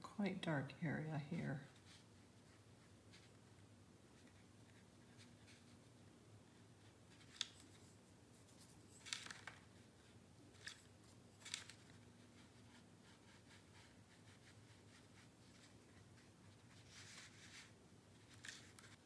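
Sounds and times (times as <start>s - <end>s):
faint room hum: 0.0s - 19.0s
brush scratching on paper: 1.6s - 3.5s, 4.1s - 9.0s, 11.8s - 19.0s.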